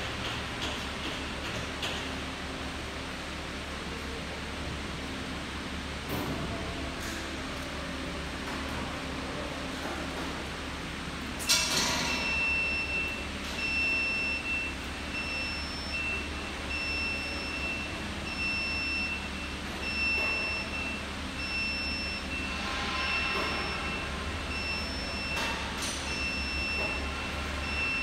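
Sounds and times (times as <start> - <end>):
high-pitched warning beep: 12.1 - 28.0.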